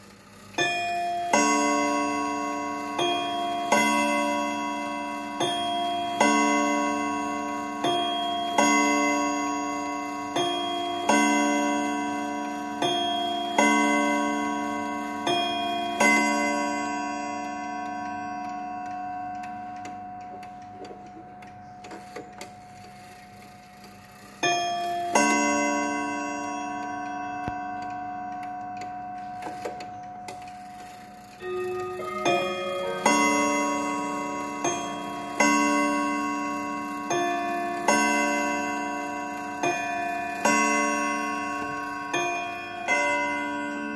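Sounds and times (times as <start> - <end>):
clock hands clicking: 0.0 - 43.9
wall clock chiming: 0.0 - 43.9.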